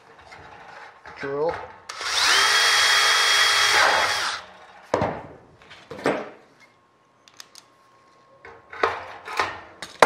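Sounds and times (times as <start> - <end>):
cordless drill drilling metal: 1.9 - 4.5.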